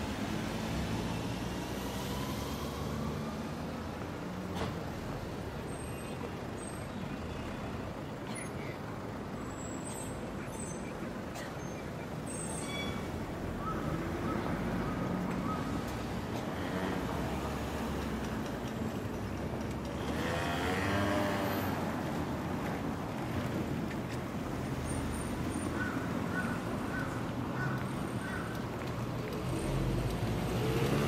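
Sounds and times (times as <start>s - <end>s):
passing traffic din: 0.0s - 31.0s
vehicle passing close: 19.8s - 22.2s.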